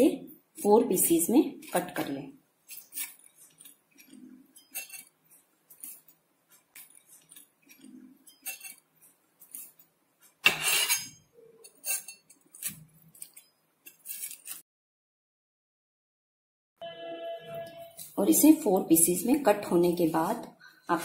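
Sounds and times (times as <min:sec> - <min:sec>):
knife cutting crisp flatbread: 0:02.6 - 0:14.6
knife scraping stone board: 0:02.7 - 0:09.8, 0:10.4 - 0:14.6.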